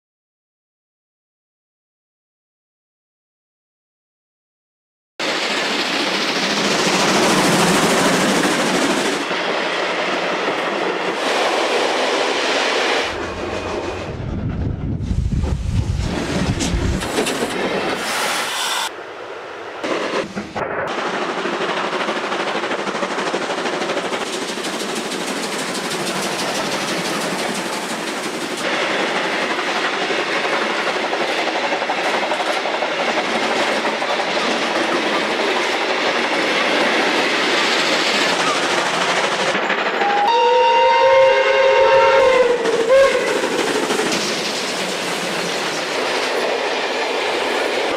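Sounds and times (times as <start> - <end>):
train wheels clattering on rails: 5.2 - 14.4, 15.2 - 18.6, 19.8 - 47.9
deep rumble: 13.2 - 17.2
steam locomotive exhaust: 19.6 - 47.9.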